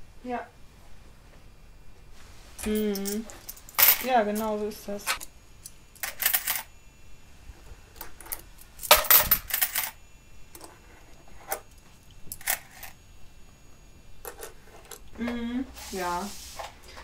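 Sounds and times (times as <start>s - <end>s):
metal coins clinking: 2.6s - 4.6s, 5.6s - 6.7s, 8.2s - 10.0s, 12.3s - 13.0s.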